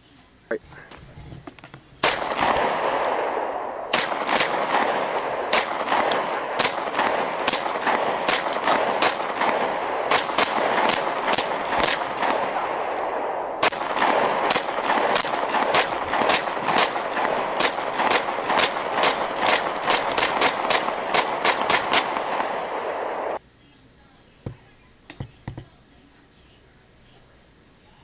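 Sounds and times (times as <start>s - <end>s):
rapid gunshots: 2.0s - 23.4s.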